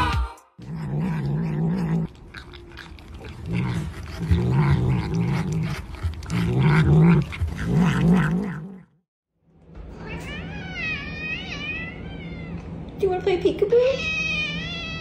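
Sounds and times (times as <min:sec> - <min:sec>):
cat growling: 0:00.6 - 0:09.0.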